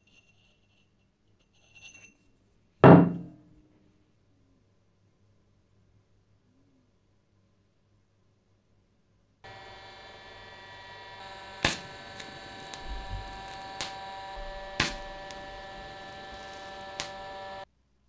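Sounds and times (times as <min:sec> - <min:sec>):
welding arc buzzing: 0:09.4 - 0:17.7
loud sharp pops: 0:11.2 - 0:17.6
small crackles: 0:11.2 - 0:17.6.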